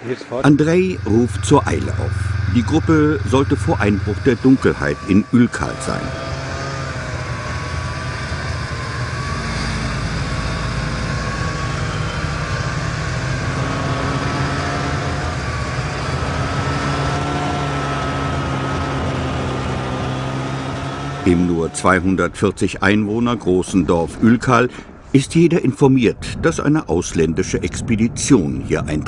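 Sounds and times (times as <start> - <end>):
vehicle engine droning: 0.0 - 29.0
thin wavering whine: 0.4 - 23.4.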